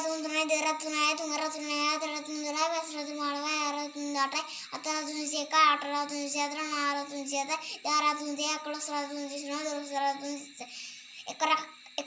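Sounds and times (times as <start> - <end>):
girl reciting in sing-song voice: 0.0 - 12.0.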